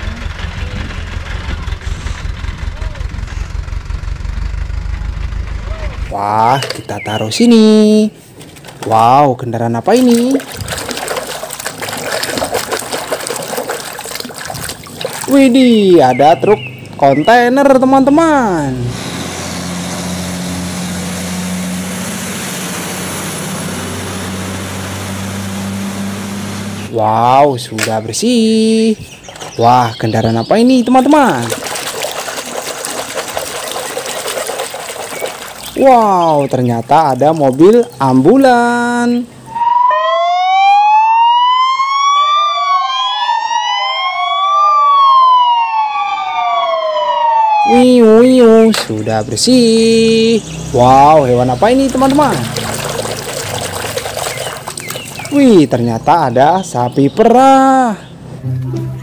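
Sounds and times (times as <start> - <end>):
truck diesel engine running: 0.0 - 6.2, 18.8 - 26.9
tyres hissing on wet road: 18.9 - 26.9
ambulance sirens wailing: 39.4 - 53.3.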